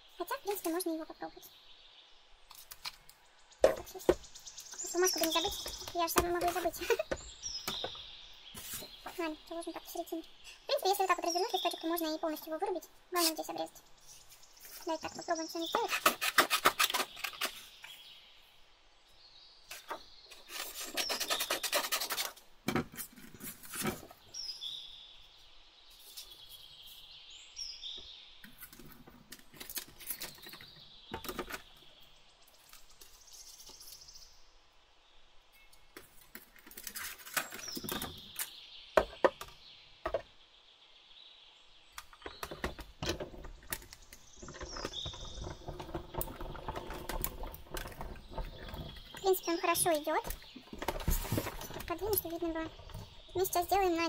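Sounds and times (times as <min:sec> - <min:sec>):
plates and paper rubbing and scraping: 0:04.9 - 0:07.2, 0:08.6 - 0:09.7, 0:14.6 - 0:17.7, 0:19.7 - 0:24.2, 0:44.4 - 0:54.0.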